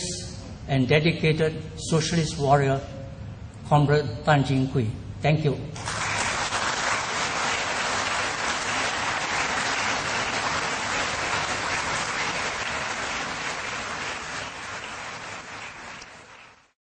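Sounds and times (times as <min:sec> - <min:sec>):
audience applause: 0:05.8 - 0:16.7.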